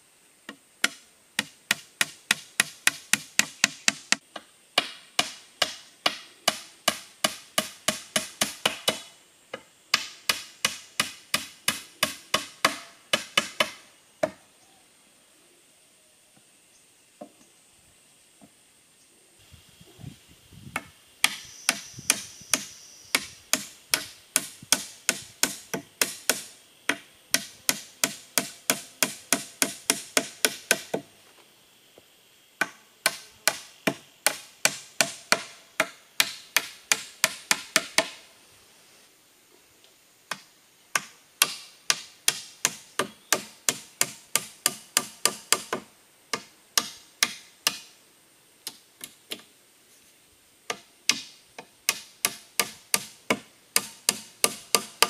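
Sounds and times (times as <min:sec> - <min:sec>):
hammer striking wood: 0:00.8 - 0:04.2, 0:04.8 - 0:09.1, 0:09.9 - 0:14.4, 0:20.8 - 0:31.1, 0:32.6 - 0:38.2, 0:40.3 - 0:47.8, 0:51.9 - 0:55.0.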